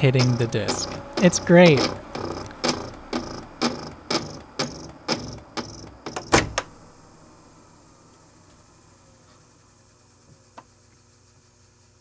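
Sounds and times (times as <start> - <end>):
lens knocking against spinning disc: 0.0 - 6.3.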